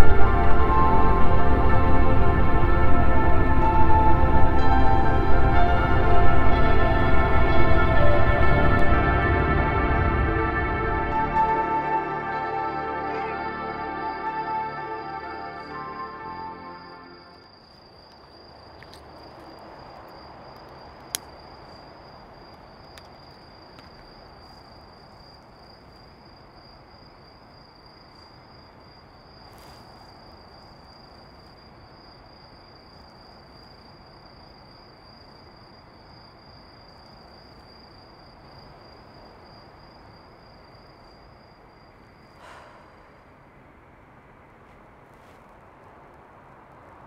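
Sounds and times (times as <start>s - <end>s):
insects trilling: 0.0s - 47.0s
faint even hiss: 29.4s - 30.4s.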